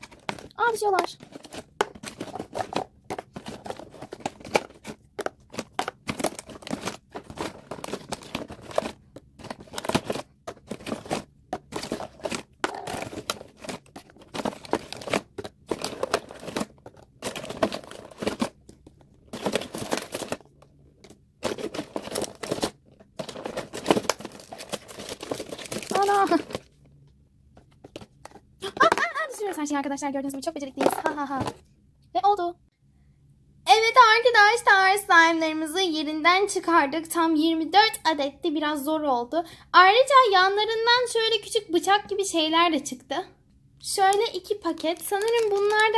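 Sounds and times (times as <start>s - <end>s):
plastic packaging crinkling: 0.0s - 26.8s, 44.0s - 45.9s.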